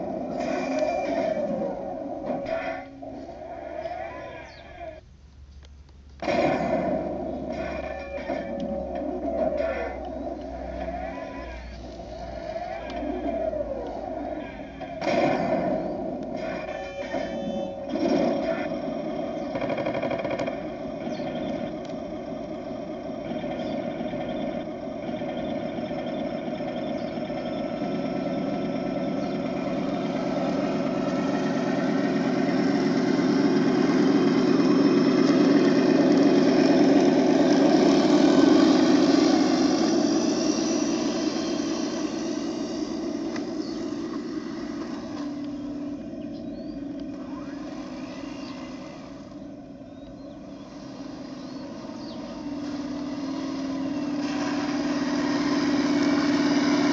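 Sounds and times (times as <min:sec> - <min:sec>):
model tank motors and engine sound: 0:00.0 - 0:56.9.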